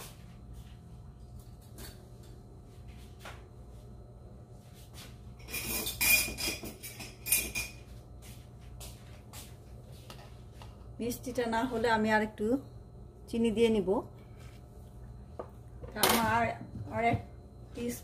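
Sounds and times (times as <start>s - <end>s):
spoon scraping dishware: 5.4s - 7.9s.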